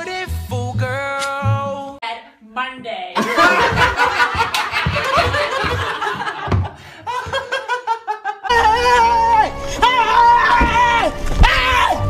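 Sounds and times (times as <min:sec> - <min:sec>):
people laughing: 0:03.2 - 0:08.8.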